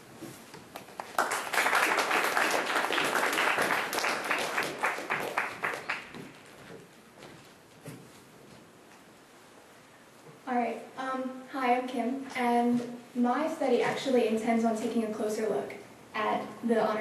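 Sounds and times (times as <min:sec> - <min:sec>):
audience applauding: 0:00.8 - 0:06.6.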